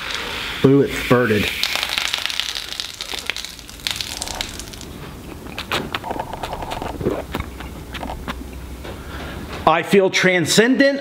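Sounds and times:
man gulping and swallowing: 1.8 - 8.7.

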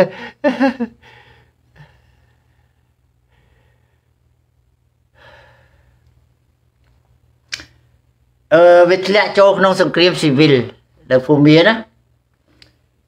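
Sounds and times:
man breathing: 0.0 - 4.4, 5.0 - 6.3
faint low hum: 0.0 - 13.0.

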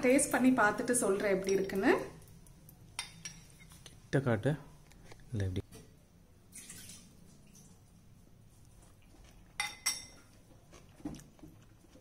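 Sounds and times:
spoon clinking against bowl: 9.6 - 10.3.

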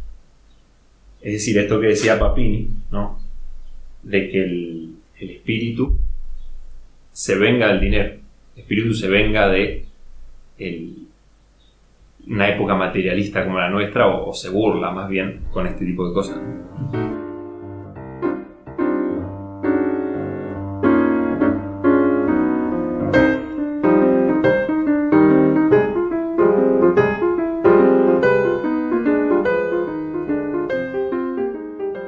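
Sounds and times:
piano melody: 1.7 - 4.1, 14.1 - 32.0.

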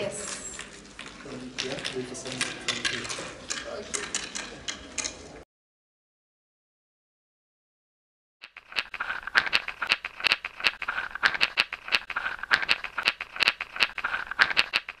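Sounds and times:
rattle shaken rhythmically: 8.4 - 15.0.

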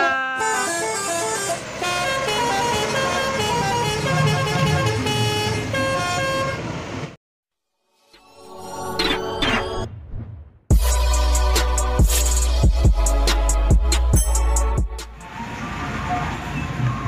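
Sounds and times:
bus engine: 0.0 - 7.2, 11.4 - 17.0.

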